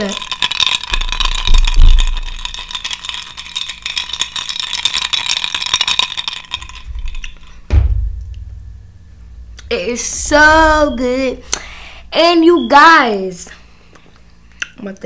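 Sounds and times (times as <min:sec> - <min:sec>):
ice cubes clinking in a glass: 0:00.0 - 0:07.6
glass set down thump: 0:07.7 - 0:08.5.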